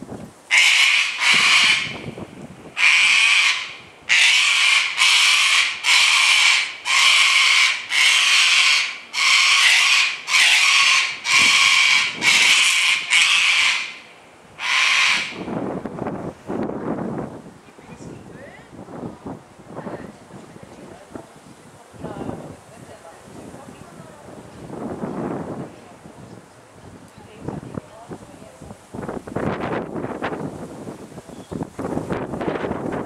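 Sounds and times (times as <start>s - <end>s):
cockatoo screeching: 0.5s - 2.1s, 2.8s - 15.5s.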